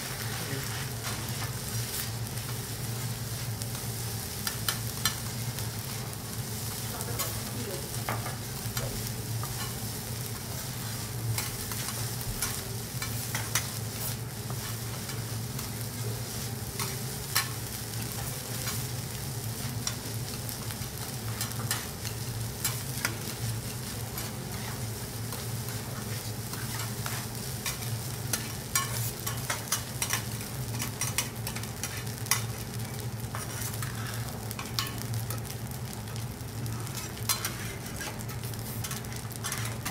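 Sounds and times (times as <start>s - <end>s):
food sizzling on a griddle: 0.0s - 39.9s.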